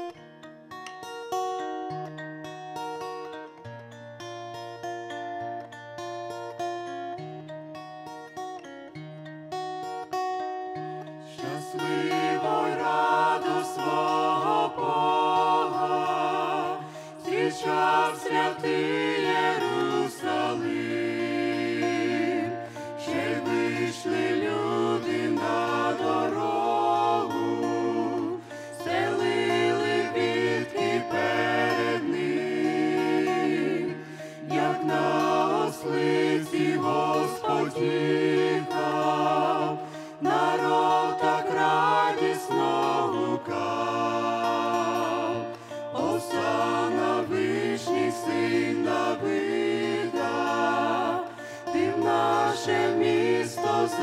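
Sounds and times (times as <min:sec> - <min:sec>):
group singing a hymn: 0:11.0 - 0:54.0.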